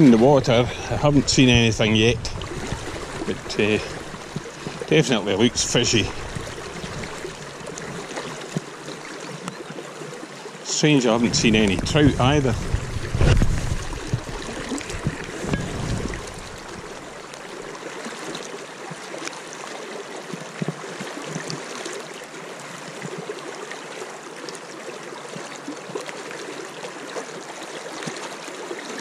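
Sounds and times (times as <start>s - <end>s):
low rumble and bumps: 0.0s - 7.4s, 11.1s - 17.1s
river water flowing and lapping: 0.0s - 29.0s
small water splashes: 0.0s - 29.0s.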